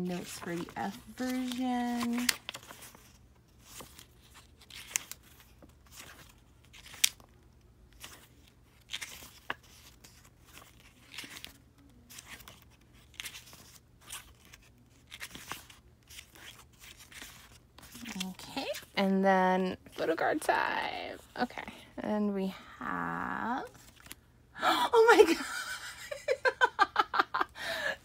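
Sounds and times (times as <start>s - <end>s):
paper pages turning: 0.0s - 19.0s, 23.7s - 24.2s.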